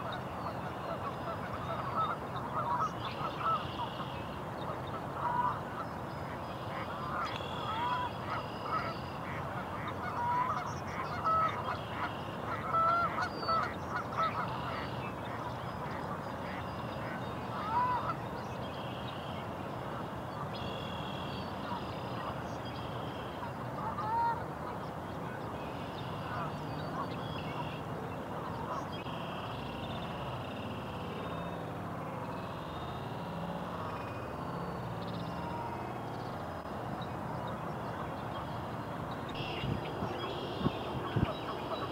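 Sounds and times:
geese honking: 0.0s - 4.1s, 5.2s - 5.9s, 6.6s - 18.2s, 23.1s - 24.4s, 26.1s - 27.8s, 39.4s - 41.9s
outdoor background noise: 0.0s - 41.9s.

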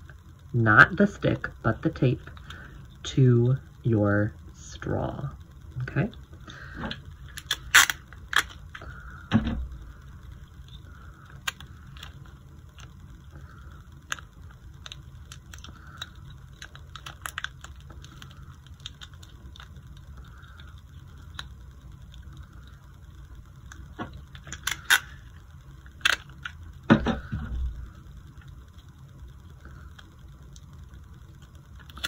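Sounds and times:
tape clicking and crackling: 1.4s - 3.8s, 4.4s - 32.0s.

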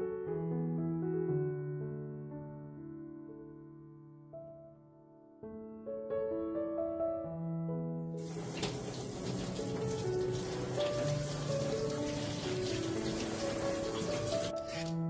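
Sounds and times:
soft piano music: 0.0s - 15.0s
tap water running into sink: 8.2s - 15.0s.

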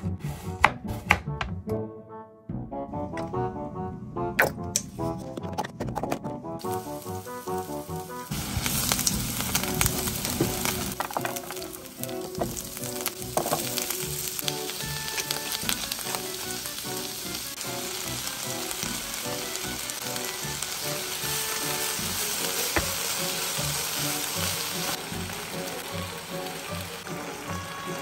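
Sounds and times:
vegetables sizzling in hot oil: 6.6s - 28.0s.

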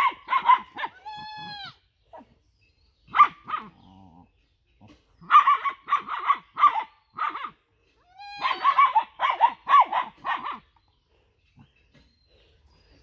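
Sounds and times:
dog barking: 0.0s - 1.0s, 3.1s - 3.8s, 5.2s - 7.6s, 8.4s - 10.7s.

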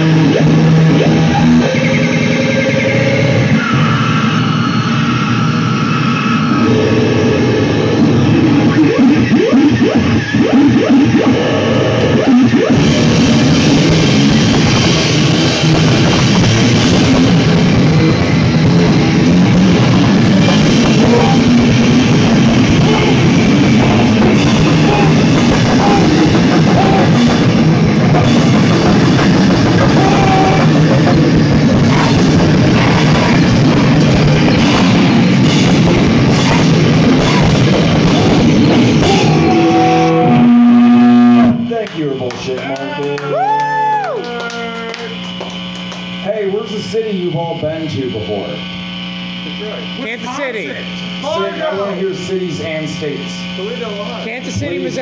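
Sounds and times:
rock band playing loud: 0.0s - 42.3s
held droning notes: 0.0s - 43.2s
drums and cymbals: 12.5s - 40.8s.

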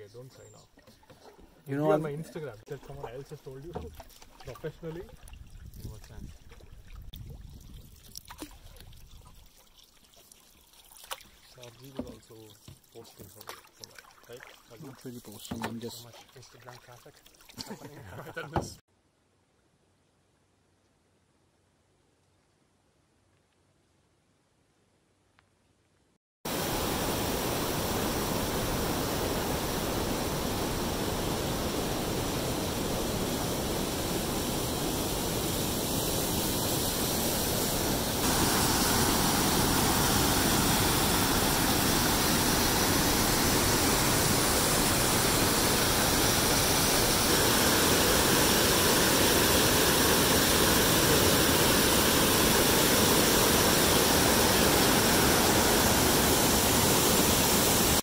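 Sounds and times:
whitewater rushing over rocks: 26.5s - 58.0s.

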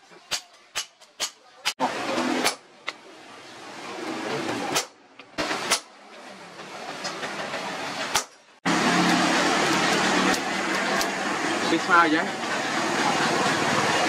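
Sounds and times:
hammer striking hot steel on anvil: 0.3s - 1.8s.

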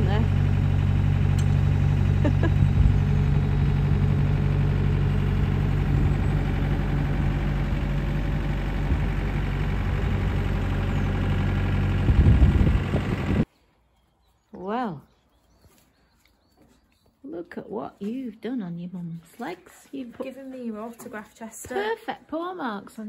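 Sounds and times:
diesel engine running: 0.0s - 13.5s.

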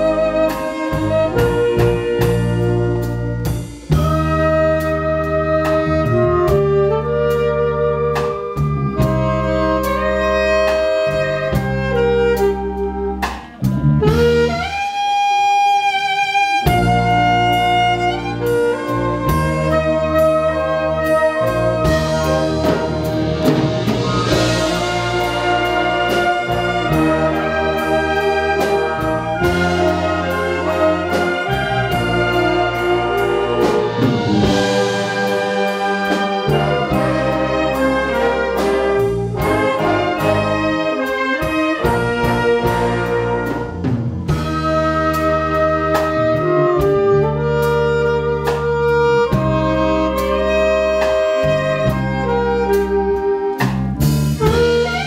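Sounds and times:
brass and woodwind chords: 0.0s - 55.0s
concert wind band playing: 0.0s - 55.0s
clarinets playing: 17.9s - 43.7s.

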